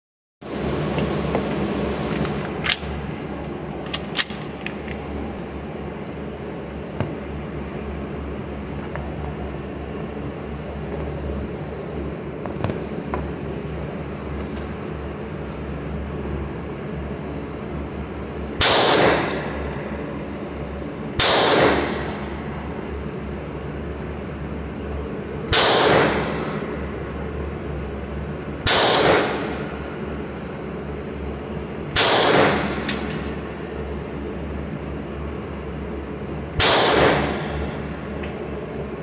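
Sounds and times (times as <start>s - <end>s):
steady low hum: 0.4s - 39.0s
pistol shots echoing indoors: 18.6s - 19.6s, 21.2s - 22.2s, 25.5s - 26.7s, 28.6s - 29.8s, 31.9s - 33.2s, 36.6s - 37.8s.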